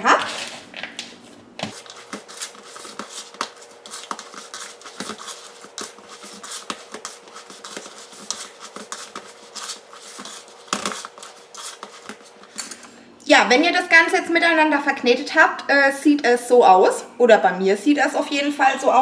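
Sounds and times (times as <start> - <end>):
hands kneading squishy dough: 1.7 - 12.5.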